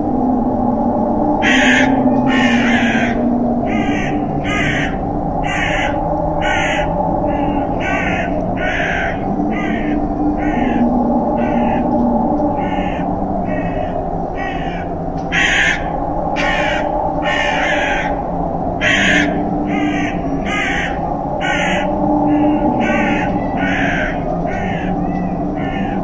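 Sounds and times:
steady low hum: 0.0s - 26.0s
crow cawing: 1.4s - 11.9s, 12.6s - 18.2s, 18.8s - 26.0s.

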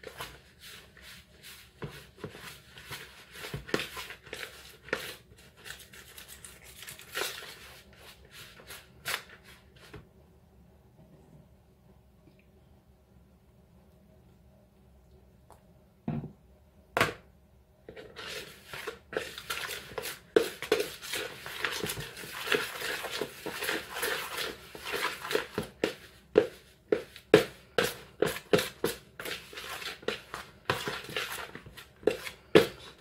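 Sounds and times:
hands squishing dough in bowl: 0.0s - 10.0s, 17.9s - 33.0s.

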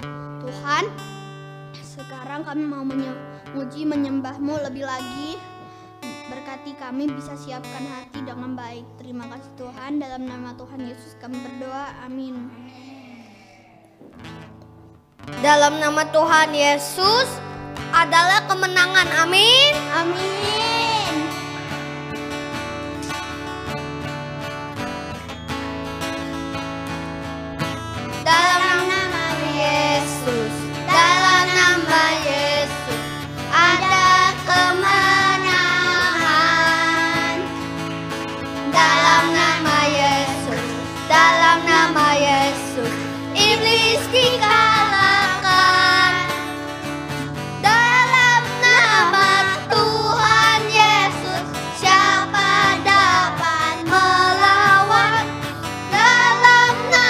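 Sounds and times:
acoustic guitar: 0.0s - 57.0s
boys singing together: 28.2s - 37.6s, 38.6s - 46.5s, 47.6s - 57.0s.

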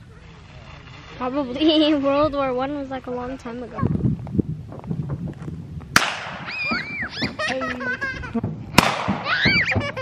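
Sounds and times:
gunshots: 6.0s - 6.5s, 8.8s - 9.4s
high-pitched laughing voices: 6.5s - 10.0s.

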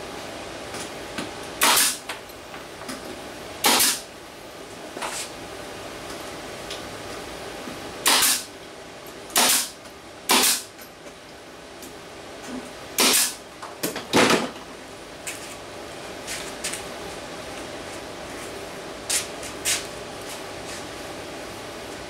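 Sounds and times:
nail gun firing into wood: 1.6s - 2.0s, 3.6s - 4.0s, 8.0s - 8.5s, 9.4s - 10.7s, 13.0s - 13.4s.

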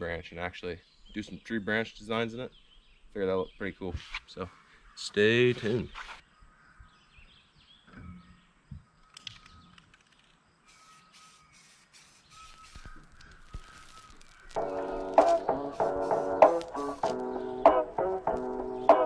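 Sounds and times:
spray-paint can hissing bursts: 10.7s - 17.2s.

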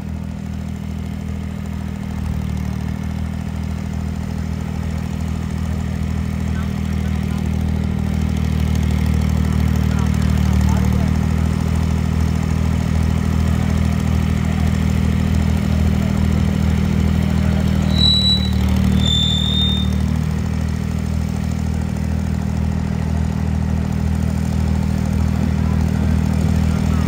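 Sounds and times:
tractor diesel engines idling: 0.0s - 27.0s
short high whistles: 17.8s - 20.2s.

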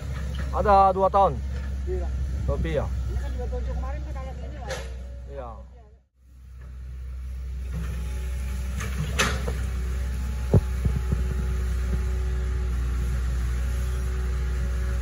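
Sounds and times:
excavator diesel engine throbbing: 6.8s - 15.0s.

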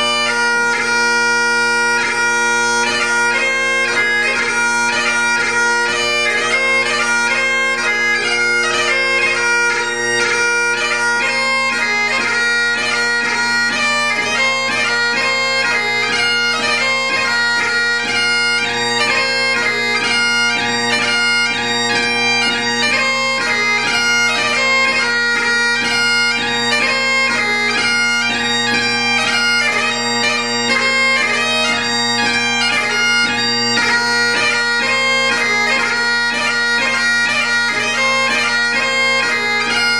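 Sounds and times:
bagpipe playing: 0.0s - 39.9s.

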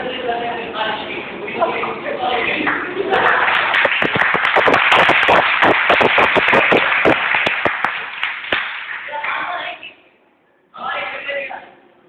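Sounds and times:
audience applauding: 2.7s - 9.4s.

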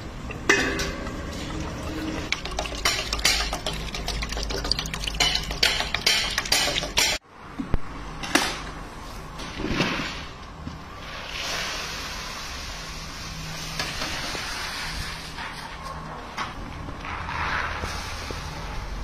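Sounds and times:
stone oil mill rumbling: 0.0s - 7.2s
knocks and clatter: 0.4s - 7.2s
oil trickling into metal pot: 0.9s - 7.2s.

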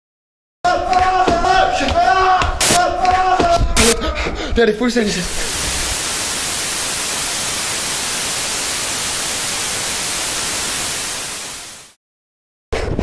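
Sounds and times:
television static hiss: 5.1s - 12.0s.

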